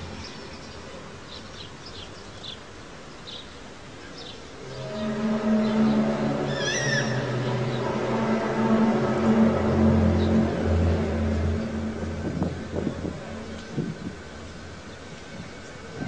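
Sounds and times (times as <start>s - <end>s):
low droning hum: 4.6s - 16.0s
wavering meow-like high call: 6.5s - 7.2s.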